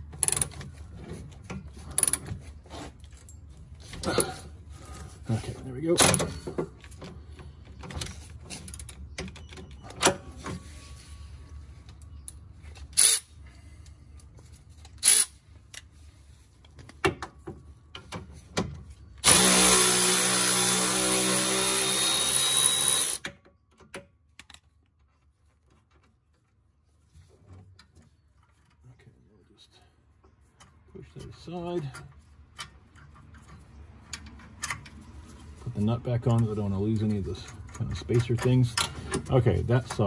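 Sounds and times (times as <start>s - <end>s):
electric ratchet running: 19.2s - 23.2s.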